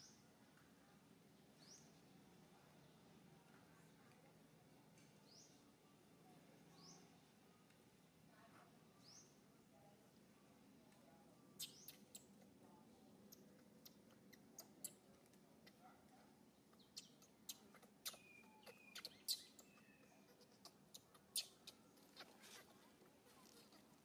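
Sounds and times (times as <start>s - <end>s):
high chirps and squeaks: 11.6s - 12.3s, 16.8s - 22.6s.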